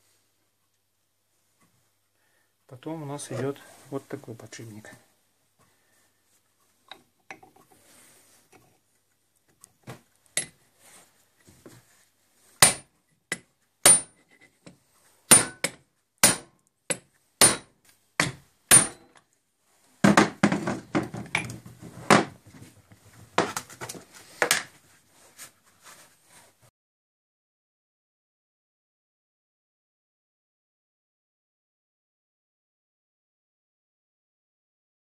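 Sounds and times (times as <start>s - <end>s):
sharp metal knocks: 12.6s - 14.2s, 15.3s - 19.1s.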